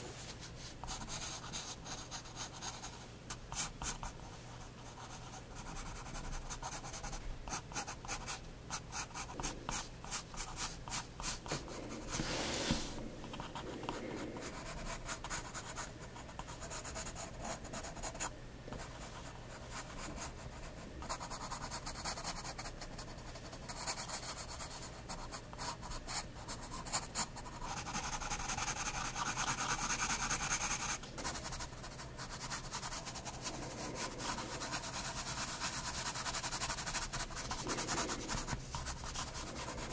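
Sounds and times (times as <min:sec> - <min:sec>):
pencil scratching on paper: 0:05.0 - 0:18.2, 0:23.7 - 0:39.9.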